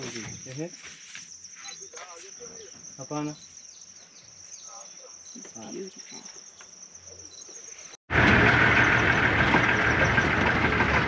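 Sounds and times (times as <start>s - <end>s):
insects trilling: 0.0s - 8.0s.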